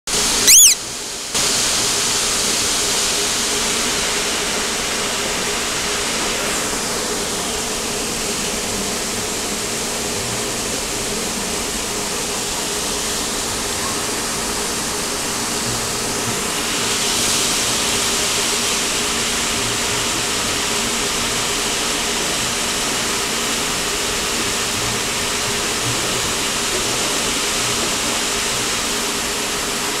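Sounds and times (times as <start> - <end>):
brief chirp: 0.5 - 0.8
aquarium water rushing hiss: 1.4 - 30.0.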